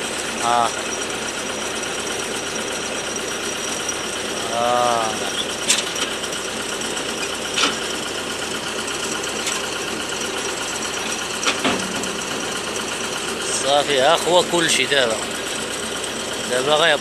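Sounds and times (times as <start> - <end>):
drilling rig engine running: 0.0 - 17.0
sharp metallic clank: 11.5 - 12.6.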